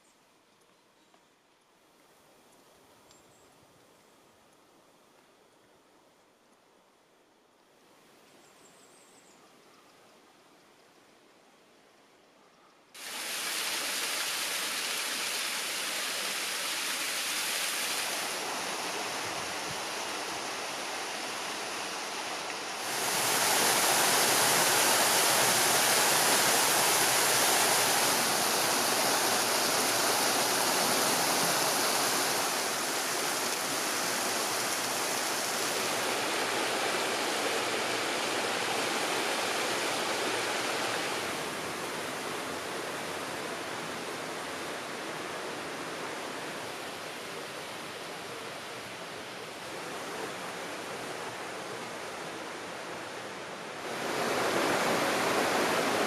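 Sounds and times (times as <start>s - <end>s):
rushing water of a stream: 13.0s - 56.0s.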